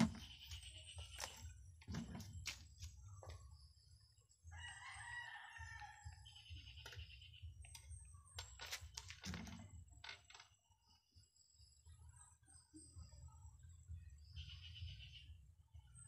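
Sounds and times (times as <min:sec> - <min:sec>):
rooster crowing: 0:04.5 - 0:06.3.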